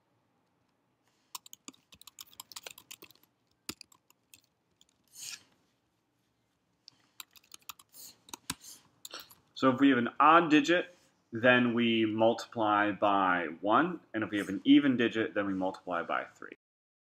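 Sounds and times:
keyboard typing clicks: 0:01.3 - 0:05.0, 0:07.2 - 0:09.2.

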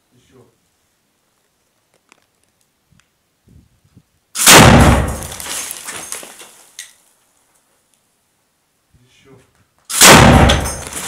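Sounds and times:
loud gunshot echoing: 0:04.4 - 0:05.4, 0:09.9 - 0:11.0.

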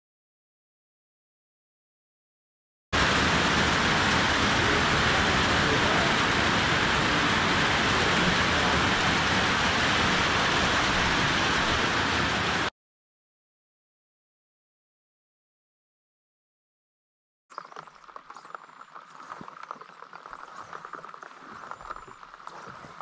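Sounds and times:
steady rain falling: 0:03.0 - 0:12.7, 0:17.5 - 0:23.0.

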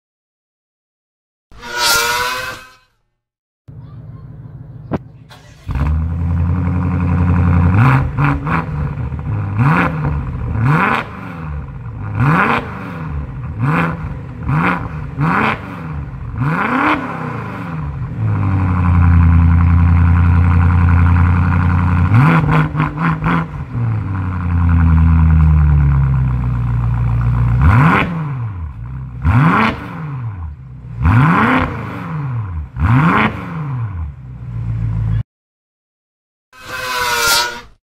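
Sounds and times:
loud engine revving: 0:05.3 - 0:26.8, 0:27.4 - 0:34.6.

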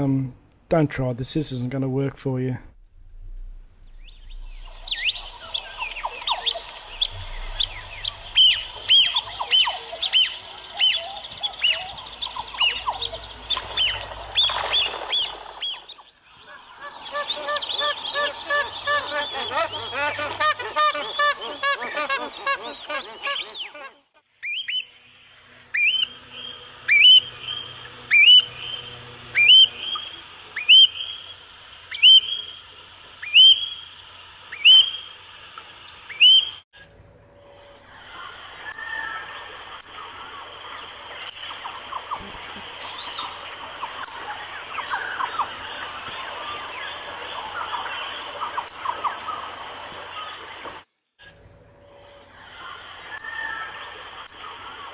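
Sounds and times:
steady high whine: 0:02.6 - 0:15.6
sharp rising whistled chirps: 0:03.8 - 0:16.1, 0:24.4 - 0:32.6, 0:33.2 - 0:33.9, 0:34.6 - 0:35.1, 0:36.1 - 0:36.9, 0:37.5 - 0:49.5
wetland bird chorus: 0:04.0 - 0:24.8, 0:25.8 - 0:32.6, 0:34.5 - 0:35.1, 0:37.8 - 0:51.4, 0:52.0 - 0:54.9
honking waterbird calls: 0:04.7 - 0:24.8, 0:25.8 - 0:31.2, 0:31.9 - 0:32.5.

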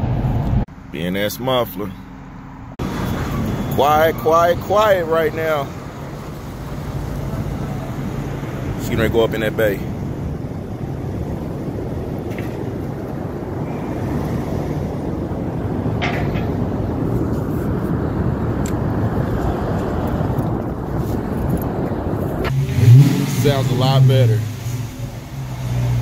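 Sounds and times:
car engine running at low speed: 0:17.1 - 0:26.0.

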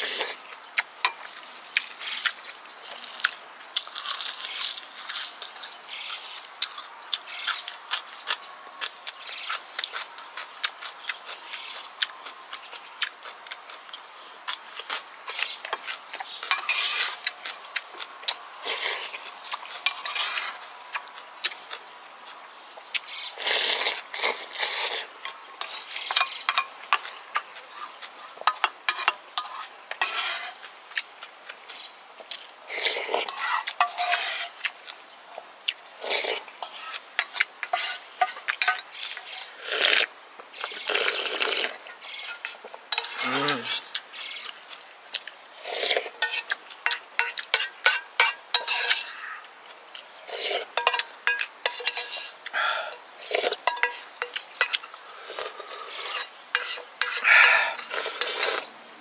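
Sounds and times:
chewing: 0:00.0 - 0:58.7
slurping: 0:39.6 - 0:41.9, 0:45.2 - 0:46.6, 0:50.3 - 0:58.7
utensils clicking on dishes: 0:50.3 - 0:52.4, 0:53.3 - 0:58.6.

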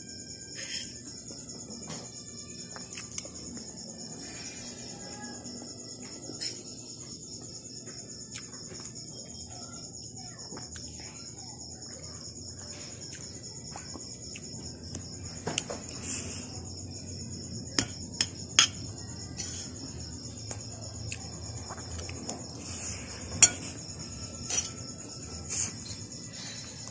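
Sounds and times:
crickets chirring: 0:00.0 - 0:26.9
metal spoon clinking on plate: 0:23.4 - 0:23.7.

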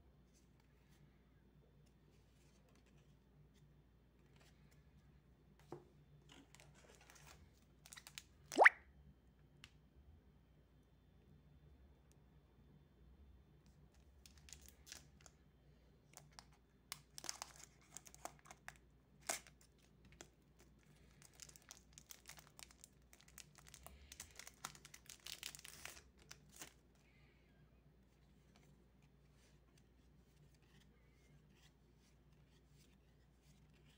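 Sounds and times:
foil wrapper crinkling and tearing: 0:21.3 - 0:26.8.

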